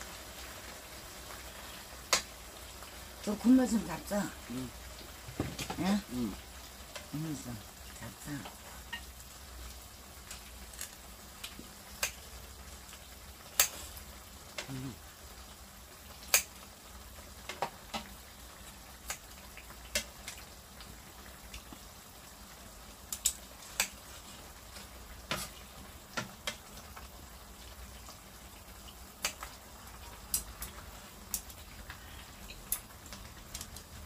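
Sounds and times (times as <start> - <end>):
broth simmering in a pan: 0.0 - 34.0
metal utensils clicking on pan: 13.6 - 13.9.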